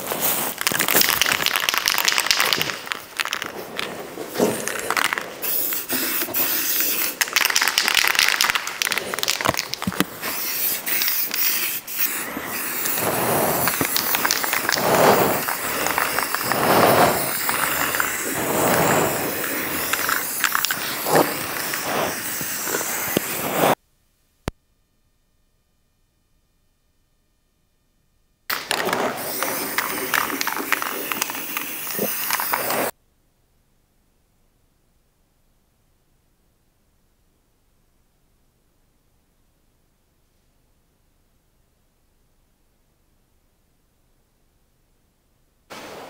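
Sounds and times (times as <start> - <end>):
aerosol spray can hissing: 0.0 - 23.8, 28.5 - 32.9.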